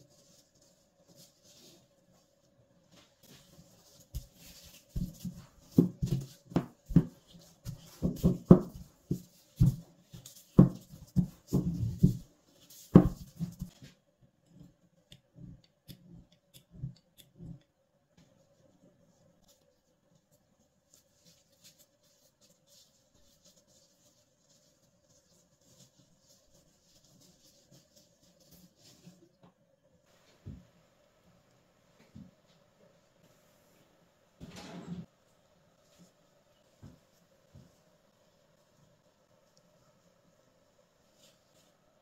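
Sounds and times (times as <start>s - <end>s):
dough thumped and rolled: 4.0s - 14.0s.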